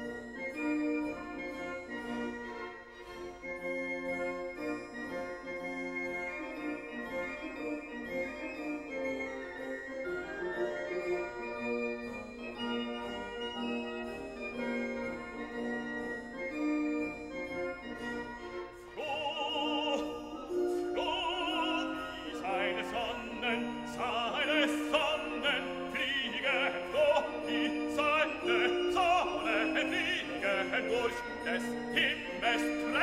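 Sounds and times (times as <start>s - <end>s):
classical music held chords: 0.0s - 33.0s
operatic voice singing: 18.9s - 33.0s.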